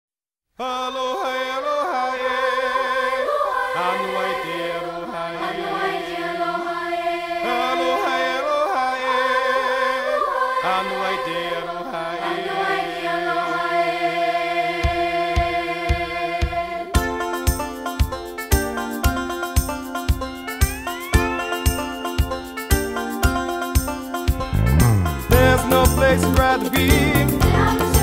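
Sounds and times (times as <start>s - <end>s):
voices singing chant-like chords: 0.6s - 17.0s, 24.3s - 28.0s.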